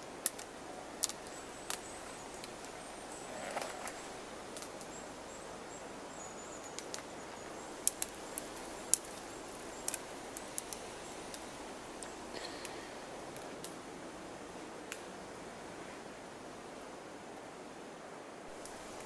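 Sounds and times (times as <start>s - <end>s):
faint outdoor hiss: 0.0s - 19.0s
dry twigs snapping: 0.2s - 2.8s, 3.4s - 5.0s, 7.8s - 13.8s.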